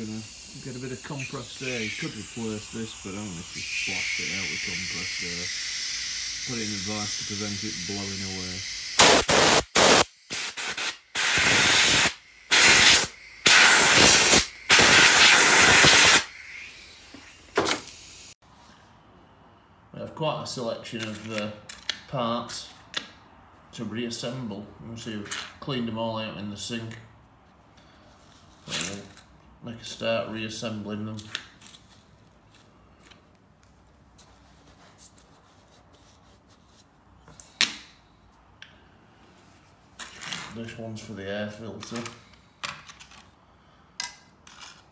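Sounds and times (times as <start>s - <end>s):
compressed air blow gun hissing: 0.0s - 18.4s.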